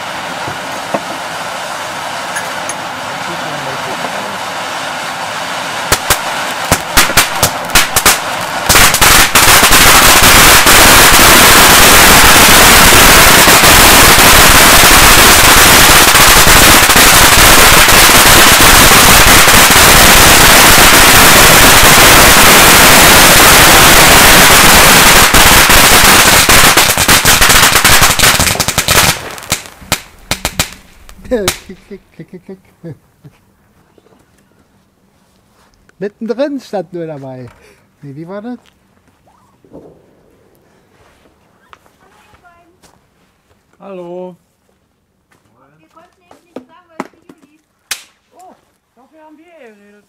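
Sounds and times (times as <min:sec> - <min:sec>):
firework crackling: 0:00.0 - 0:32.1, 0:39.2 - 0:42.8
fountain firework hissing: 0:00.0 - 0:32.1.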